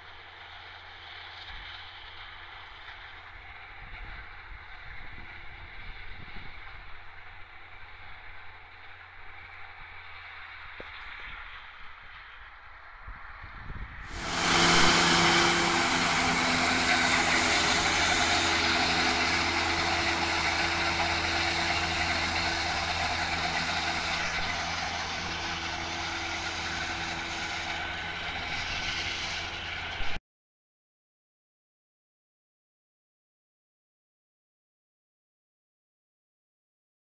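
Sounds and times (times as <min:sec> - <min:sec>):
tractor diesel engine under load: 0:00.0 - 0:12.6, 0:14.1 - 0:30.2
disc mowers whirring hiss: 0:14.1 - 0:30.2.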